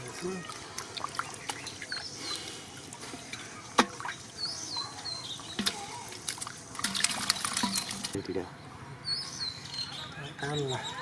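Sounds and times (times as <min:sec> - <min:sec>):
water trickling and splashing: 0:00.0 - 0:08.4.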